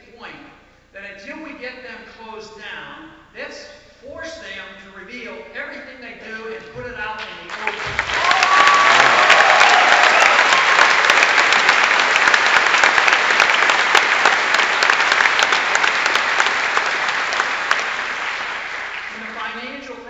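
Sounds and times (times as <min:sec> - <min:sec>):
large audience applauding: 0:07.4 - 0:19.6.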